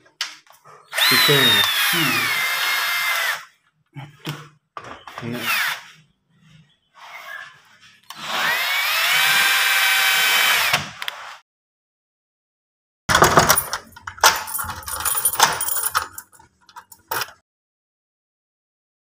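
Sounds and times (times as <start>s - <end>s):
drill motor whine: 0.9s - 3.5s, 5.4s - 5.8s, 8.1s - 10.8s
knocks and handling sounds: 3.6s - 5.4s, 13.1s - 17.4s.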